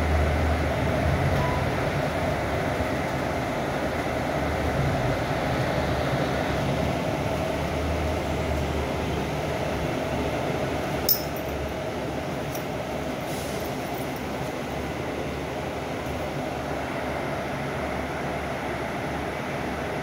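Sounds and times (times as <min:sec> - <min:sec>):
bus engine drone: 0:00.0 - 0:20.0
road noise: 0:00.0 - 0:20.0
fitting rattling clink: 0:11.0 - 0:11.7, 0:12.4 - 0:12.7, 0:13.6 - 0:14.3.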